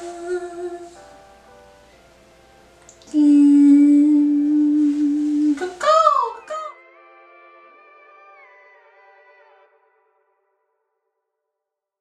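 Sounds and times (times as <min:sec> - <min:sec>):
woman singing held notes: 0:00.0 - 0:01.0, 0:02.9 - 0:06.8.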